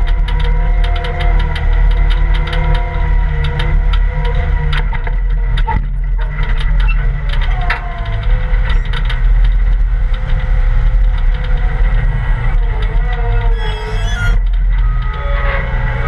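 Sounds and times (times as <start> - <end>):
rattling knocks from machine: 0.0 - 11.9
diesel engine running under load: 0.0 - 16.0.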